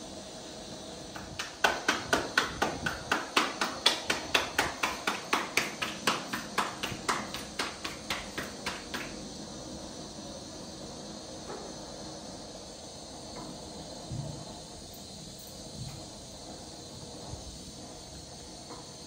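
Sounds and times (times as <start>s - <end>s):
hands patting dough: 1.1s - 9.2s.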